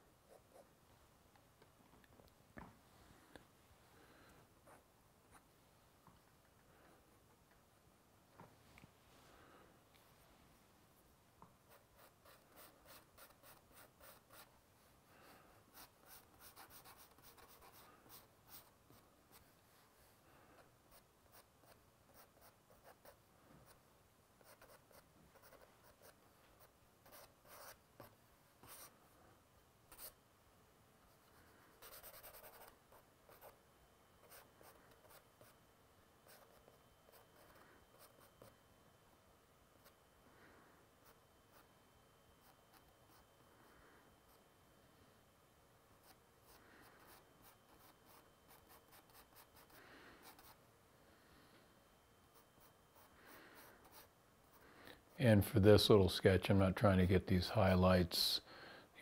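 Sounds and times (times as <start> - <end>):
pencil scratching on paper: 11.7 - 14.6, 15.7 - 19.5, 24.4 - 28.9, 31.7 - 33.6, 52.3 - 54.1.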